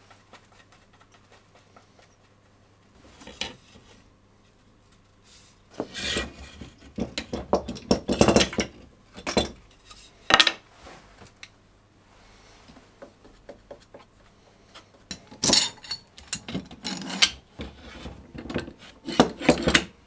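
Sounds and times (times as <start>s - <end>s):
wooden boards knocking and scraping: 5.8s - 9.6s.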